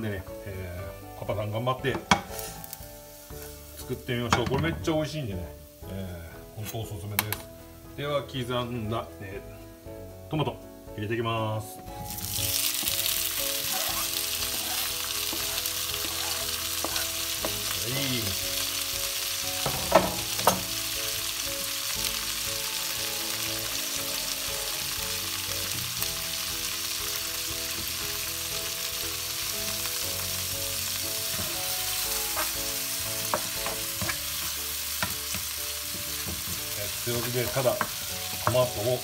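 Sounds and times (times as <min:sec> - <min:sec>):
tomatoes sizzling in oil: 0:00.0 - 0:39.0.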